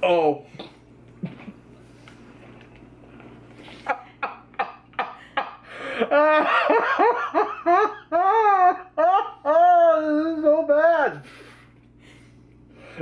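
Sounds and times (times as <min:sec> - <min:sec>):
men laughing: 0:03.7 - 0:11.0.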